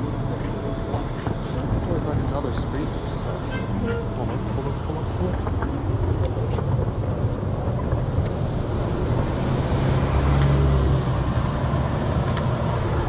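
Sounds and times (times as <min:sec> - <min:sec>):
traffic rumble: 0:00.0 - 0:13.0
vehicle passing: 0:08.5 - 0:13.0.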